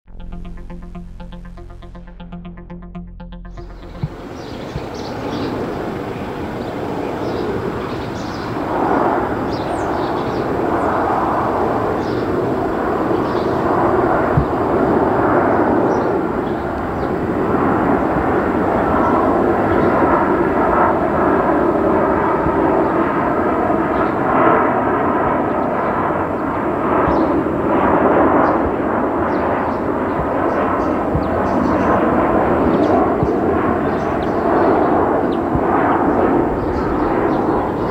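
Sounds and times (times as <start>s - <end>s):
faint jet whine: 3.6s - 37.9s
jet engines rumbling overhead: 3.9s - 37.9s.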